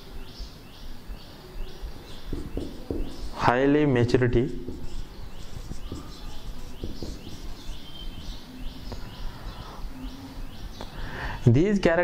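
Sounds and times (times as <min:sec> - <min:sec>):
bird chirping: 0:00.0 - 0:11.6
marker writing on whiteboard: 0:01.9 - 0:09.6.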